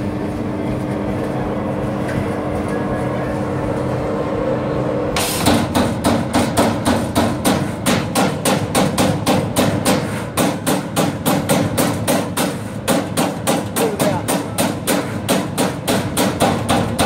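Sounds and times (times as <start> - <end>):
punch press striking sheet metal: 5.2 - 17.0.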